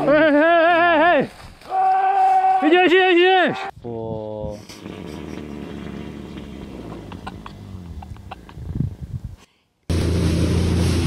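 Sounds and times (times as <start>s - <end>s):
motorboat running at speed: 4.7s - 8.0s, 9.9s - 11.0s
wind on microphone: 8.2s - 9.4s.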